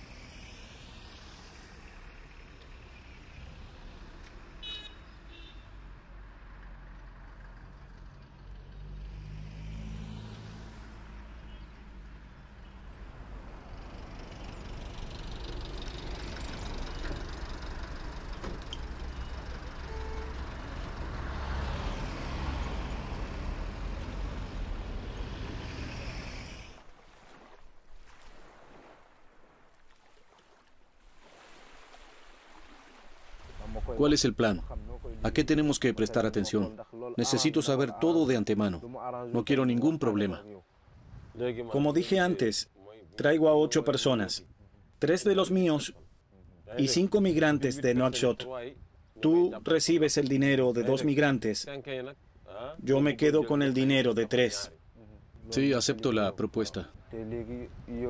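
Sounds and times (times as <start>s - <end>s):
water at the shore: 0.0s - 5.7s, 9.5s - 58.0s
vehicles passing: 0.0s - 27.6s, 31.7s - 58.0s
wind: 0.0s - 58.0s.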